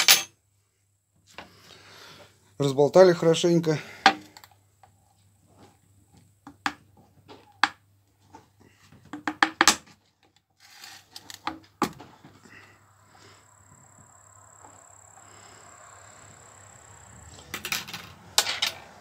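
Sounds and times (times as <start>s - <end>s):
paint tins clicking and knocking: 9.0s - 10.4s.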